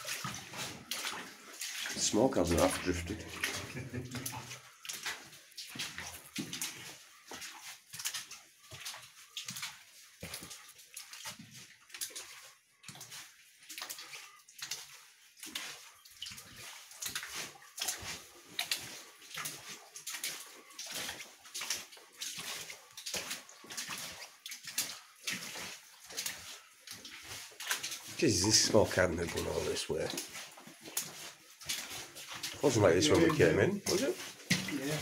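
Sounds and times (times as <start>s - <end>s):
footsteps splashing through water: 0.0s - 35.0s.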